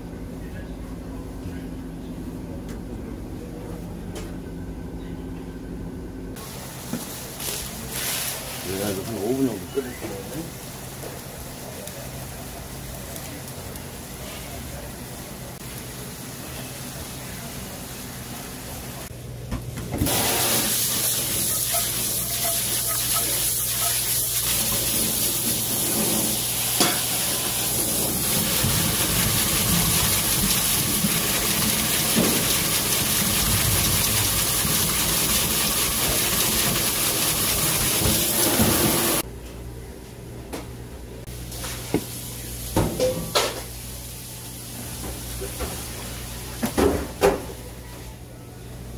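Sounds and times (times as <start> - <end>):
tap water rushing: 19.9 - 39.2
water boiling in a pan: 20.1 - 39.2.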